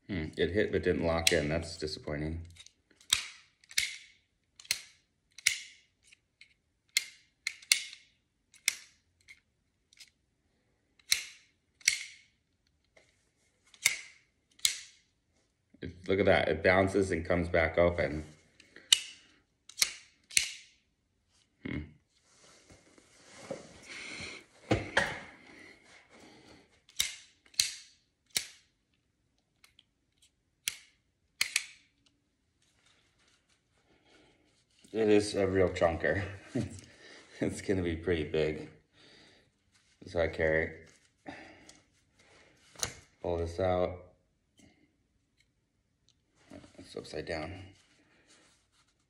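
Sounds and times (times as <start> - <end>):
folding knife clicking shut: 19.7 - 20.6, 26.9 - 28.6, 30.6 - 31.8
handling rustle: 32.5 - 35.8.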